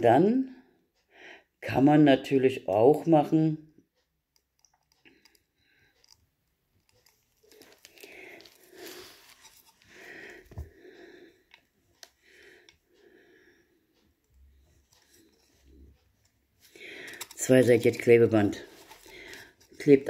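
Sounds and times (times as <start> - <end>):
faint heavy breathing: 7.4 - 17.4, 18.6 - 19.8.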